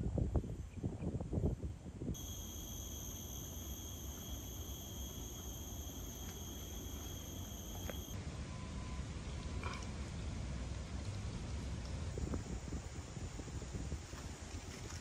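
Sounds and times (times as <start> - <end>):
insect singing high note: 2.2 - 8.2.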